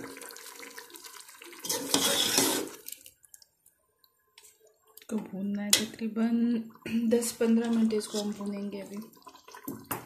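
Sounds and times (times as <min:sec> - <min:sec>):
meat sizzling in pot: 0:00.0 - 0:03.0.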